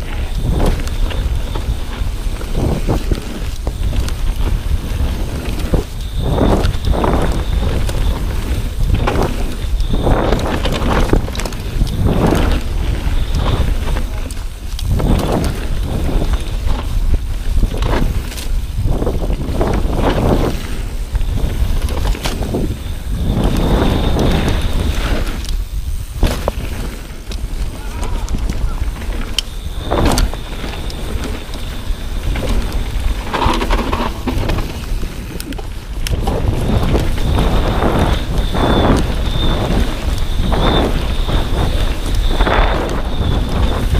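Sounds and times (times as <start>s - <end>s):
bike rattling over bumps: 0.0s - 43.9s
bike tyres on dirt: 0.0s - 43.9s
wind buffeting microphone: 0.0s - 43.9s.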